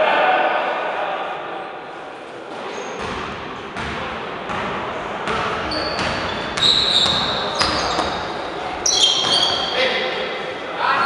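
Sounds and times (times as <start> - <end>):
basketball bouncing on wooden floor: 3.0 - 8.2
sneakers squeaking on hardwood: 5.3 - 9.8.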